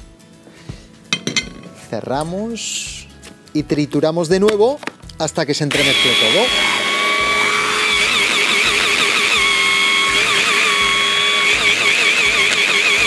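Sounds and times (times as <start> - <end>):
hand blender motor whining: 5.7 - 13.0.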